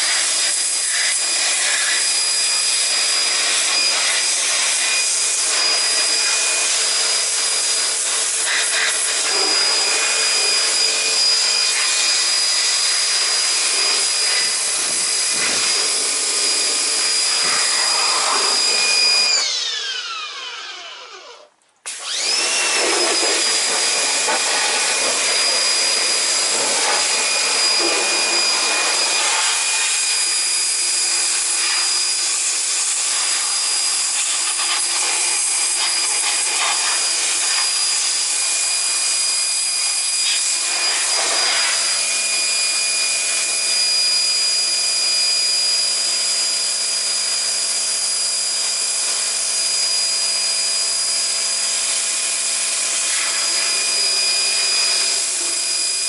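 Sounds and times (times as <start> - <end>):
loud hiss: 0.0 - 19.4, 21.9 - 42.8
small electric motor whining: 0.0 - 56.0.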